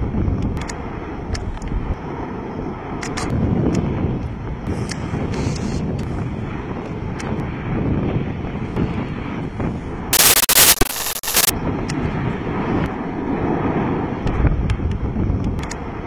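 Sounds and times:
loud harsh burst of noise: 0:10.1 - 0:11.5.

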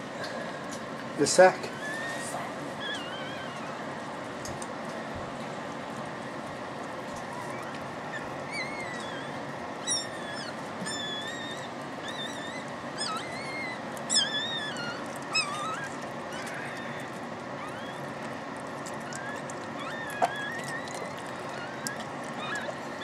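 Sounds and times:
puppy crying: 0:01.6 - 0:04.1, 0:07.2 - 0:23.0.

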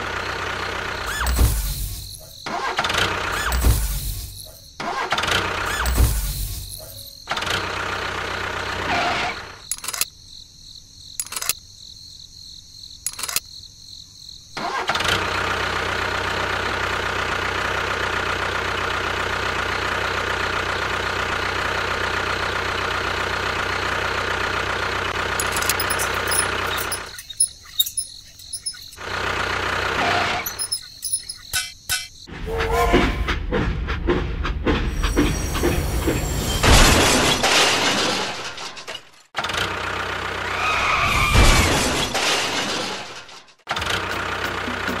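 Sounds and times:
sharp clicks: 0:09.7 - 0:10.1, 0:11.2 - 0:11.6, 0:13.1 - 0:13.4, 0:25.4 - 0:29.0.

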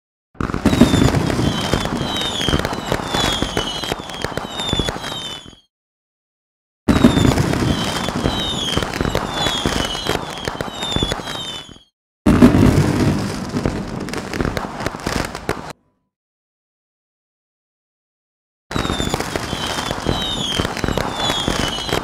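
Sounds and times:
fireworks crackling and popping: 0:00.4 - 0:05.7, 0:06.9 - 0:15.8, 0:18.7 - 0:22.0
falling whistles: 0:00.6 - 0:05.7, 0:06.9 - 0:11.9, 0:18.7 - 0:22.0.

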